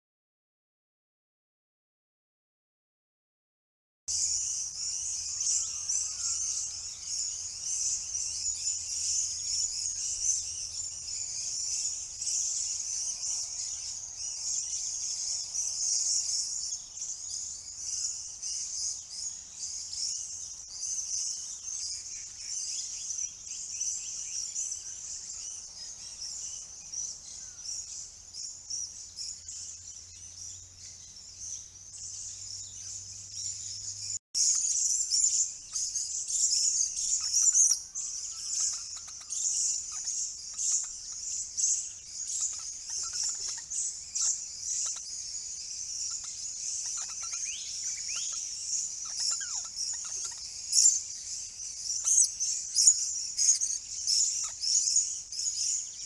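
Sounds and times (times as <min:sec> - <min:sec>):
parrots chattering and screeching: 0:37.1 - 0:41.3, 0:42.1 - 0:51.2, 0:51.9 - 0:55.0.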